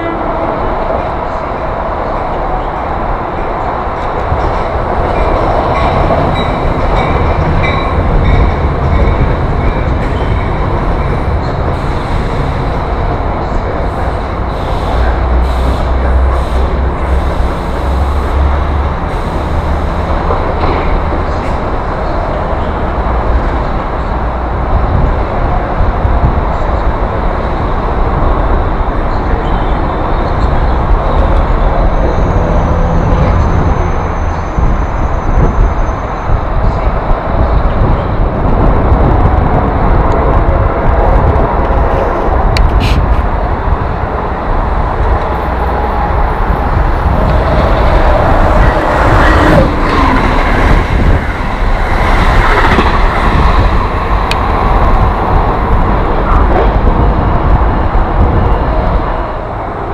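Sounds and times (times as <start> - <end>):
train wheels rumbling on rails: 0.0 - 59.9.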